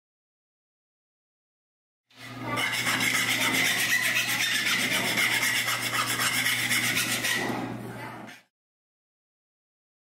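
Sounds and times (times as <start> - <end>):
abrasive rubbing metal: 2.3 - 8.4.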